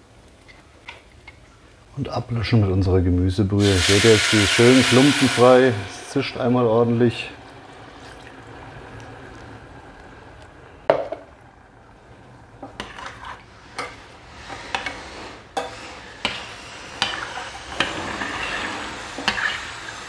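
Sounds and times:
metal spoon scraping pot: 12.6s - 19.7s.

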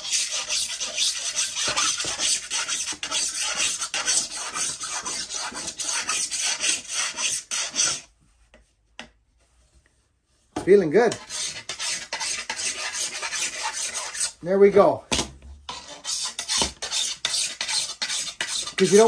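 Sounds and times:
file rasping on steel: 0.0s - 8.1s, 11.1s - 14.4s, 15.7s - 19.0s.

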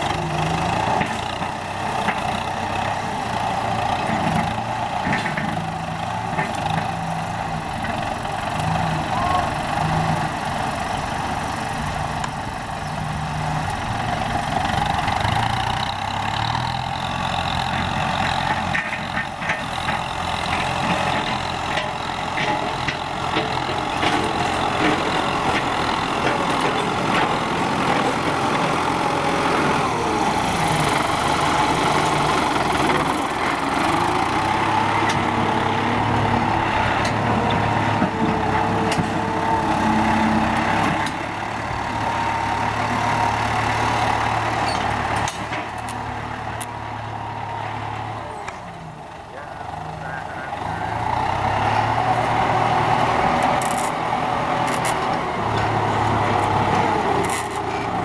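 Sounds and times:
tractor diesel engine under load: 0.0s - 58.0s
clicks and clatter: 17.7s - 27.5s, 53.4s - 54.0s, 54.6s - 55.7s, 57.2s - 57.9s.

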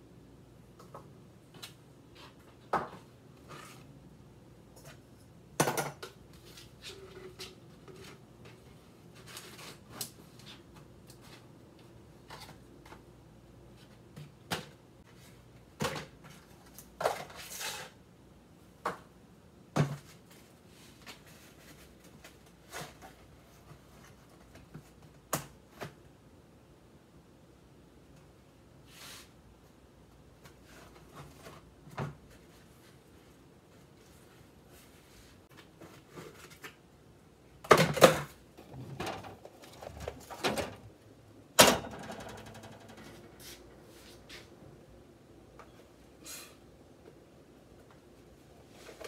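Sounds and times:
scrape or rustle: 3.4s - 3.9s, 17.2s - 18.0s, 28.8s - 29.4s, 43.4s - 44.5s, 46.2s - 46.6s.

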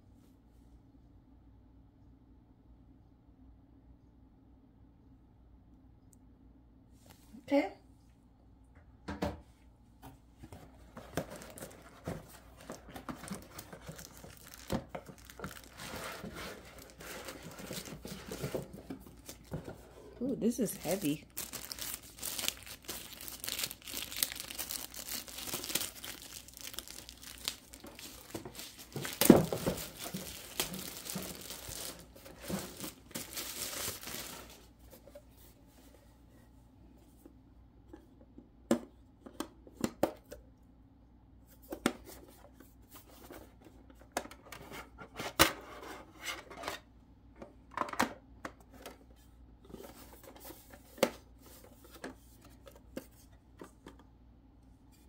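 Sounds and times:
plastic wrapping crinkling: 12.6s - 19.6s, 20.4s - 34.7s.

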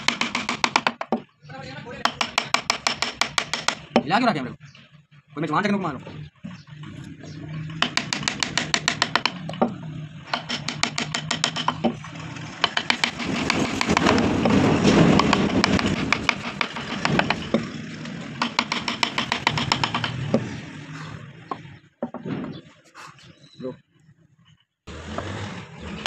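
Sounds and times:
gouge scraping wood panel: 12.6s - 17.7s, 18.4s - 21.2s.

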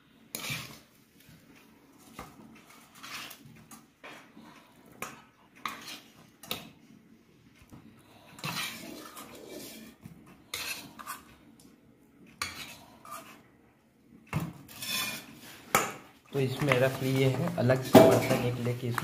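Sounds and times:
metal spoon scraping pan: 0.3s - 1.0s, 2.0s - 6.8s, 8.1s - 11.4s, 12.3s - 13.5s, 14.5s - 19.0s.

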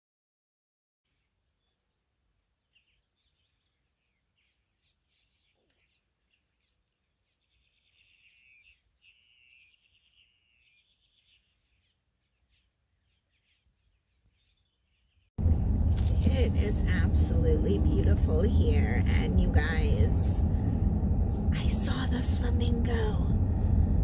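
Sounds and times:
faint bird calls: 2.6s - 15.3s.

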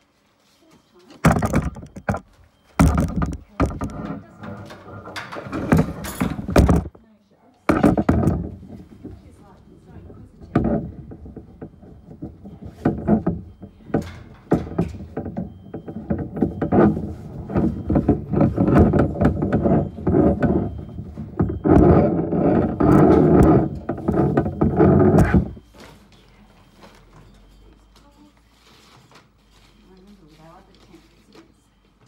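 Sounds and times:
tent poles knocking and scraping: 1.2s - 7.0s, 7.7s - 25.6s.

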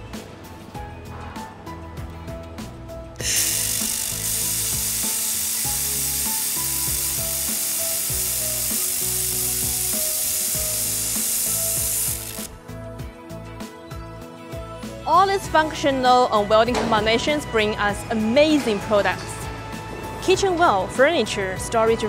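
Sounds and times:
background music: 0.0s - 22.0s
laser welder hissing: 3.2s - 12.6s.

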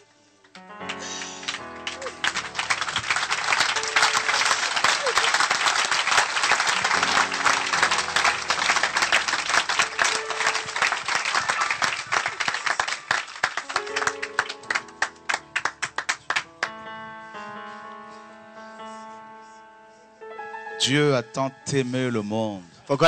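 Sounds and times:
soft instrumental music: 0.0s - 12.0s, 13.4s - 23.0s
congregation applauding: 0.8s - 16.7s.

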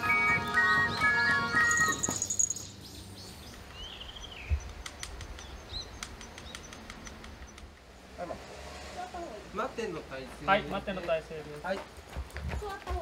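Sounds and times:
music: 0.0s - 2.1s
bird chirping: 0.0s - 7.8s
faint clicks: 4.6s - 7.8s.

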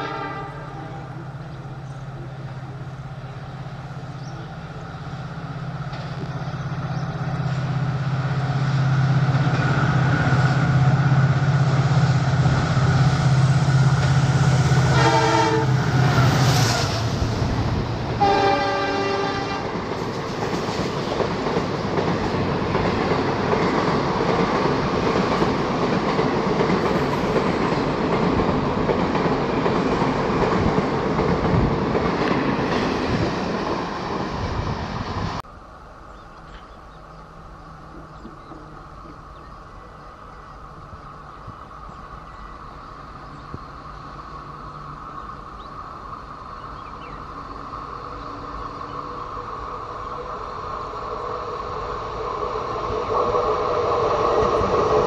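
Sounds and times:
train horn blasts: 0.0s - 1.3s, 14.0s - 17.1s, 18.2s - 19.8s
diesel locomotive drone: 0.0s - 55.0s.

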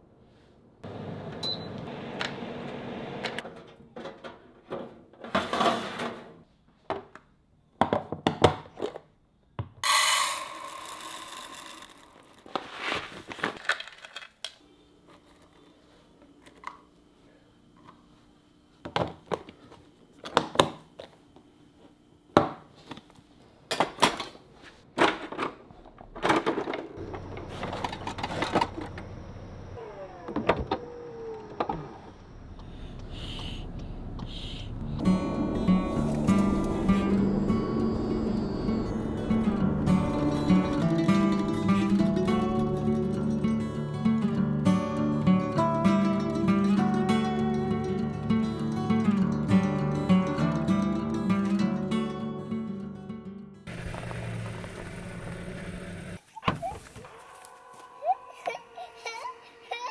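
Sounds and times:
faint steady hum: 25.7s - 45.5s.

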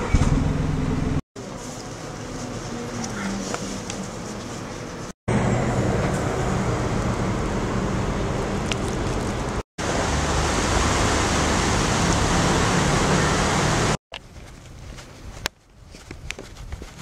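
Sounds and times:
stream rushing over rocks: 9.8s - 14.0s.

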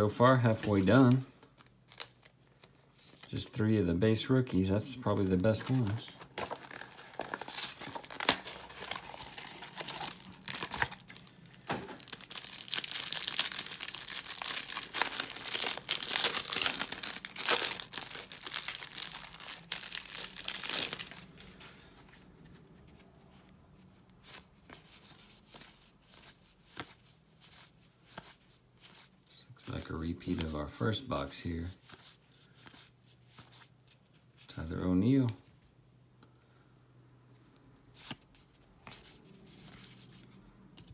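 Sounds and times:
cards rustling: 0.3s - 35.4s, 37.9s - 40.9s
plastic wrapper crinkling and ripping: 0.7s - 2.4s, 5.4s - 21.6s.

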